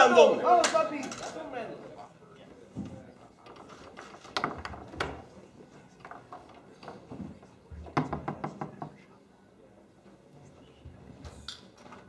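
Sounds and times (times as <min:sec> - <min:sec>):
foosball rods clacking: 0:03.5 - 0:05.3, 0:05.9 - 0:07.2.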